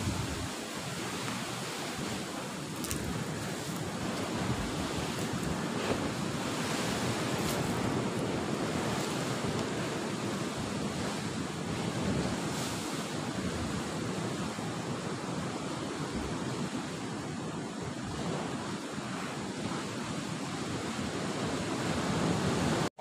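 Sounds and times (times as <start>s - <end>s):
surf breaking on rocks: 0.0s - 13.1s
wind on microphone: 0.0s - 22.9s.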